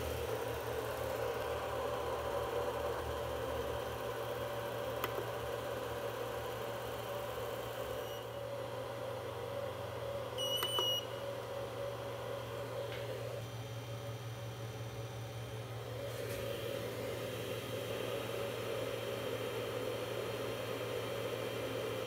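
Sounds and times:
cooling fans whirring: 0.0s - 22.0s
short high beep: 10.4s - 11.0s.

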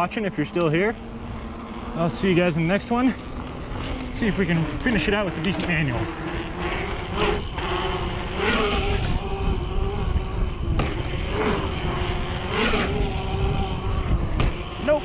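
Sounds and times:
bicycle freehub buzzing: 0.0s - 15.0s
wind rumble on microphone: 3.6s - 15.0s
bike bumps: 10.6s - 11.1s, 14.0s - 14.8s.

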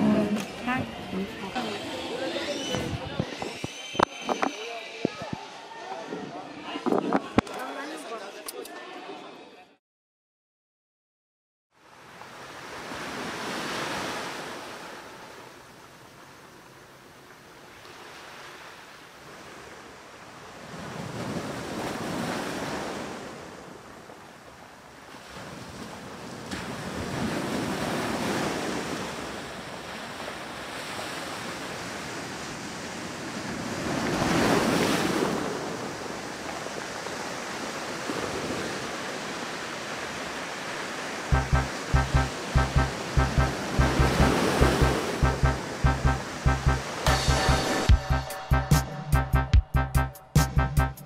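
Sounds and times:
music with steady beat: 41.3s - 51.0s.

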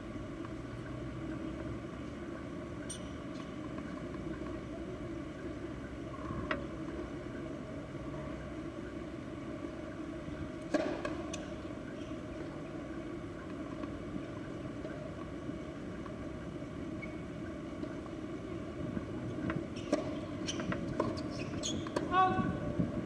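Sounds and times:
outdoor background noise: 0.0s - 23.0s.

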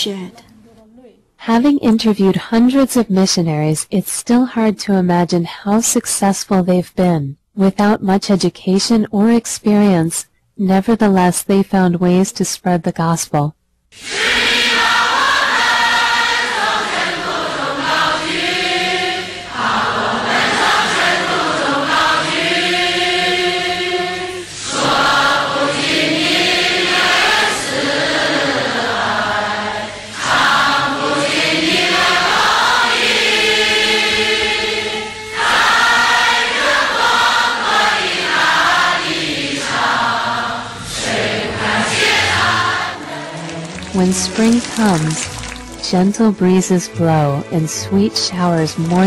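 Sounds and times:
congregation singing a hymn: 14.0s - 45.2s.

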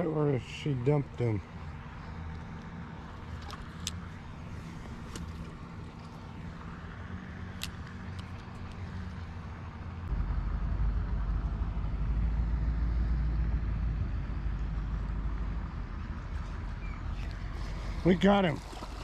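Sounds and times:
truck engine idling: 0.0s - 19.0s
deep loud rumble: 10.1s - 18.1s.

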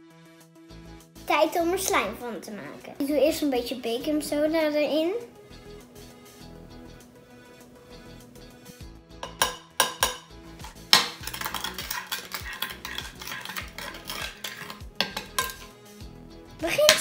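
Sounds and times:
spoon clinking on glass bowl: 9.2s - 15.7s
spoon stirring and scraping slime: 9.2s - 15.7s.

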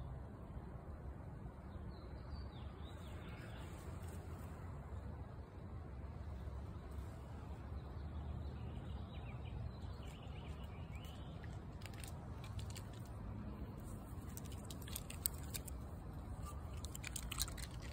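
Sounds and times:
low outdoor rumble: 0.0s - 17.9s
claws scratching on tree bark: 10.1s - 17.9s.

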